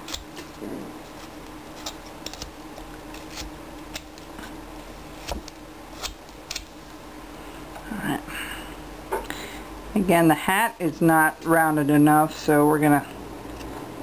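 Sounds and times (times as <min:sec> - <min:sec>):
knife carving wood chips: 0:00.0 - 0:06.8.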